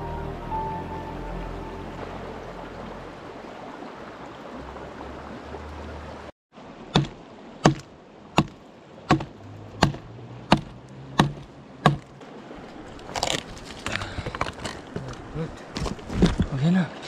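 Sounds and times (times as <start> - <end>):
axe chopping firewood: 6.9 - 12.1.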